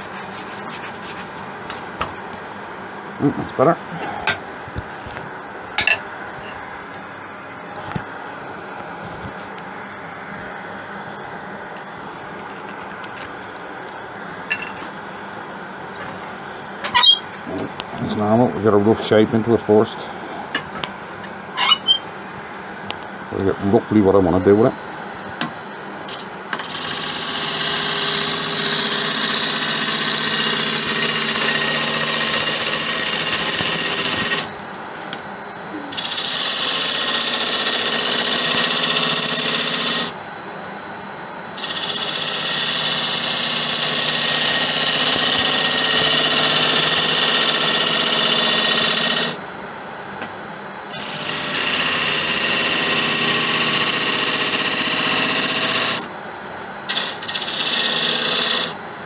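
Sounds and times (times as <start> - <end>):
turning tool cutting wood: 26.1 - 34.5, 35.9 - 40.2, 41.6 - 49.4, 50.9 - 56.1, 56.9 - 58.8
wood lathe running: 26.1 - 34.5, 35.9 - 40.2, 41.6 - 49.4, 50.9 - 56.1, 56.9 - 58.8.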